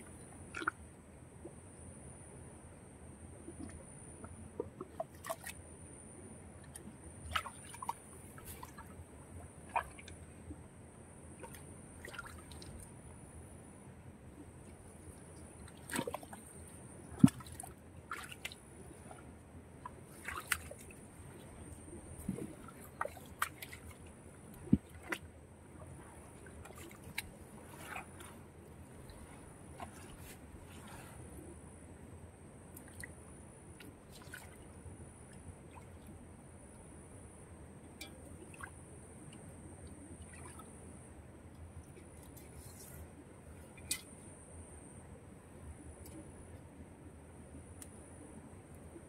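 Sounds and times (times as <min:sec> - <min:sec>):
muddy water squelching and sloshing: 0:00.0 - 0:00.9, 0:03.5 - 0:05.8, 0:06.6 - 0:10.7, 0:11.3 - 0:13.0, 0:14.5 - 0:31.4, 0:32.6 - 0:36.2, 0:38.0 - 0:44.3
small splashes: 0:04.6 - 0:05.6, 0:06.6 - 0:09.0, 0:09.6 - 0:10.2, 0:11.4 - 0:12.9, 0:15.2 - 0:25.3, 0:26.2 - 0:31.0, 0:32.8 - 0:34.7, 0:40.2 - 0:40.7.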